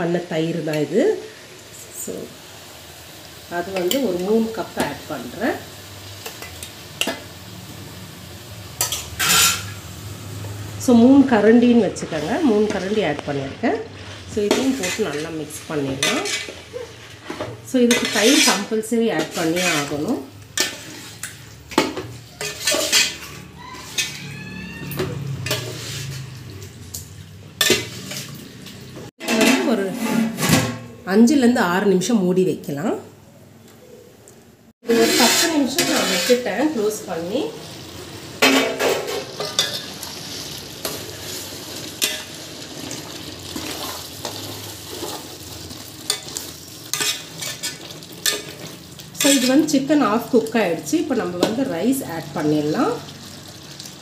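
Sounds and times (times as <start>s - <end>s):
food bubbling and sizzling in pot: 0.8s - 29.2s, 34.8s - 54.0s
metal spoon scraping a pot: 8.8s - 9.8s, 14.0s - 26.3s, 29.2s - 30.8s, 34.8s - 36.9s, 38.4s - 42.4s, 46.1s - 49.8s.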